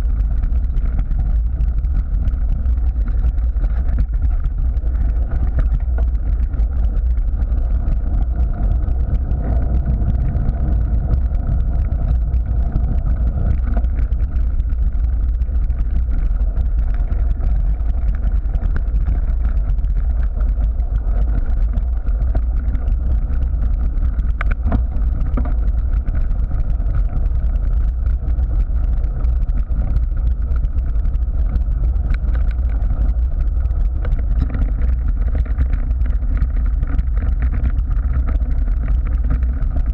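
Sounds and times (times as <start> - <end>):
tyre rumble: 0.0 - 39.9
wind buffeting: 0.0 - 39.9.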